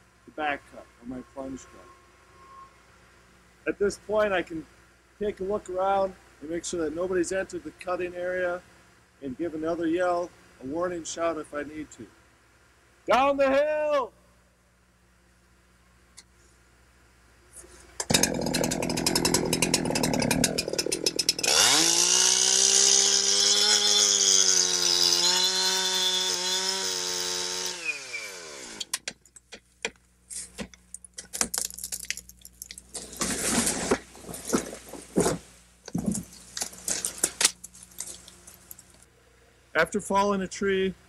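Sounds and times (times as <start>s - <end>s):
chainsaw cutting: 18.0s - 28.9s
tree cracking and crashing down: 18.1s - 22.8s, 31.2s - 38.9s.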